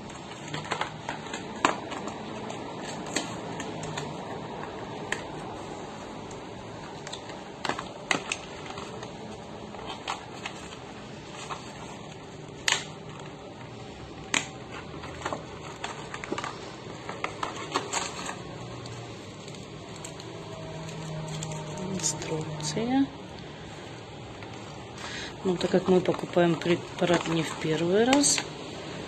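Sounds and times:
cardboard box clicking and crackling: 0.0s - 5.6s, 6.8s - 22.4s.

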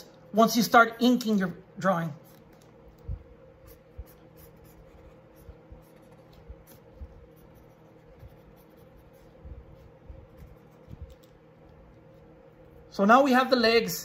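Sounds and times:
pencil scratching on paper: 3.6s - 12.8s.

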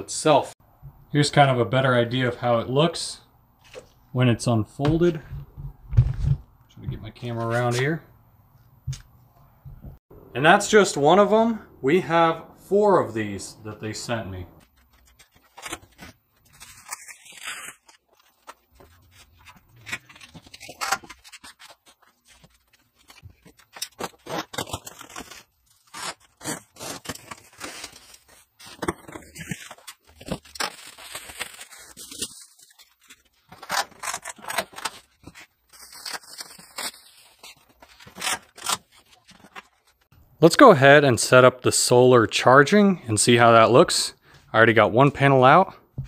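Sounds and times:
bubble wrap rubbed and crinkling: 14.7s - 40.1s.

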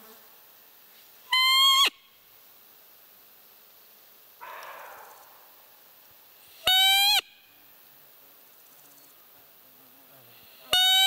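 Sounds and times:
deer call high squeak: 1.3s - 2.0s, 6.6s - 7.2s, 10.7s - 11.0s.

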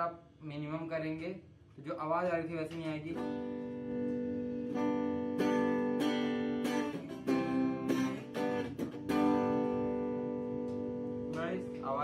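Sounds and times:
electric guitar strummed chords: 3.1s - 12.0s.

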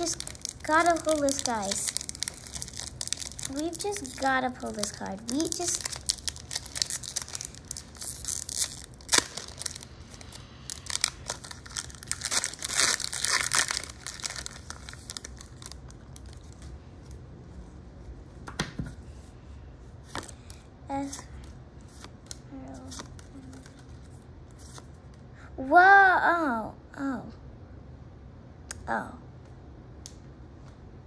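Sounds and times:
foil wrapper crinkling and tearing: 0.0s - 16.7s.

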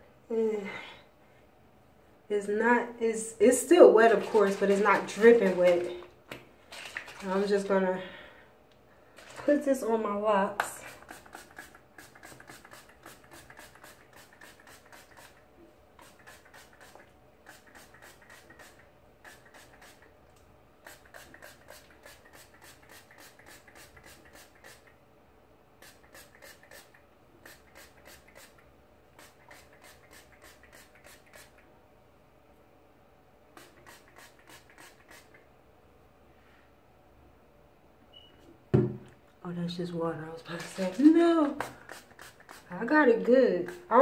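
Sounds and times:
spray bottle spritzing: 10.8s - 20.1s, 20.8s - 24.9s, 25.8s - 28.6s, 29.2s - 31.6s, 33.5s - 35.4s, 40.6s - 42.8s.

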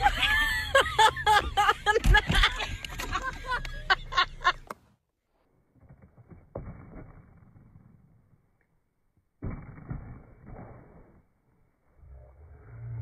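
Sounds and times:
skateboard hitting rough asphalt: 5.7s - 8.2s, 9.4s - 11.1s.

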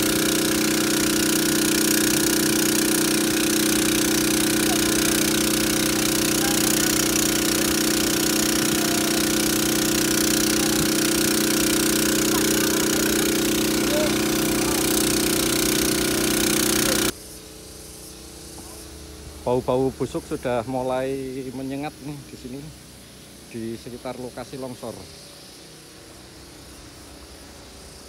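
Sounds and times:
diesel engine running: 0.0s - 17.2s.

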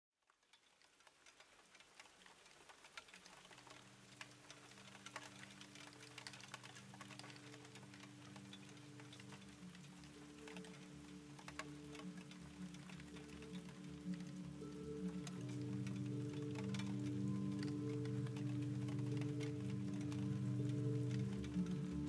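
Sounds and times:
crackling ticking texture: 0.2s - 22.0s
sustained low chord: 10.2s - 22.0s.

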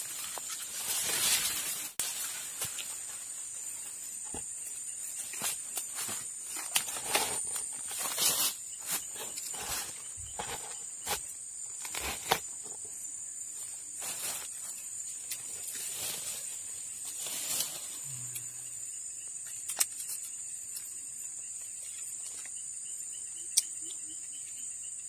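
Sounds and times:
leaves rustling: 0.0s - 12.8s, 13.5s - 18.4s
insects chirring: 0.0s - 25.0s.

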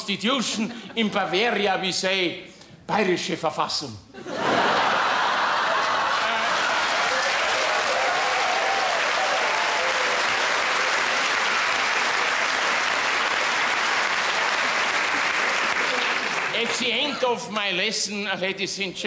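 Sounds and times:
audience applauding: 4.5s - 17.2s.

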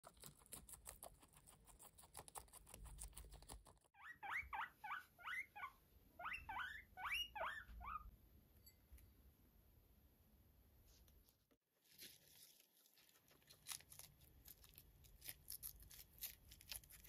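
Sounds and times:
guinea pig chewing lettuce: 0.0s - 5.4s, 11.9s - 17.0s
guinea pig squeaking: 0.0s - 8.1s, 12.9s - 17.0s.

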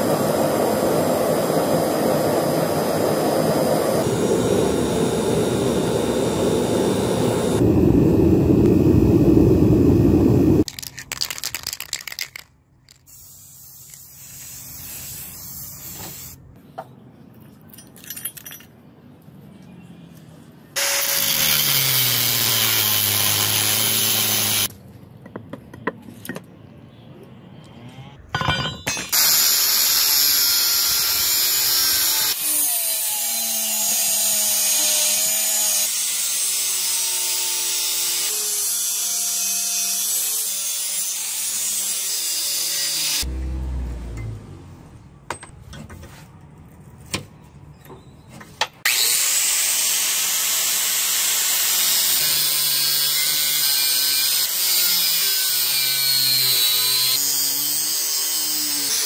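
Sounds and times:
angle grinder cutting steel: 20.8s - 24.7s, 29.0s - 43.3s, 48.9s - 59.0s.

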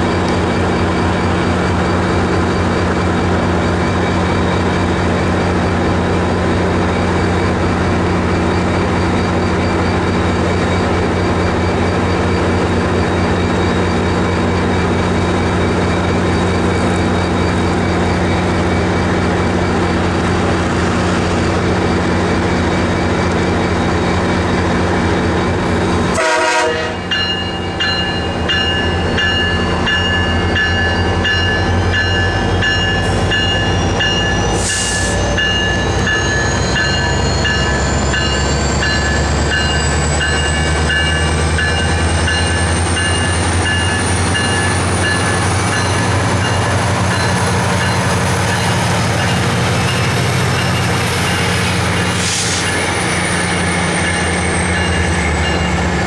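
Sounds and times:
high ringing tone pulses: 27.0s - 56.0s.

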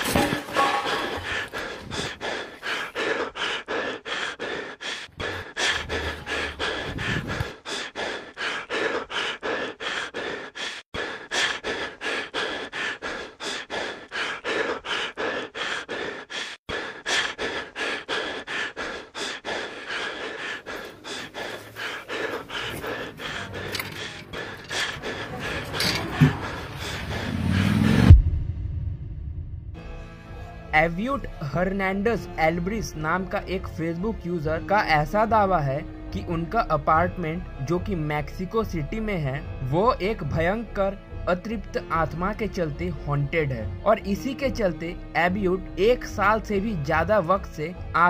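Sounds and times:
person panting heavily: 0.0s - 28.1s.

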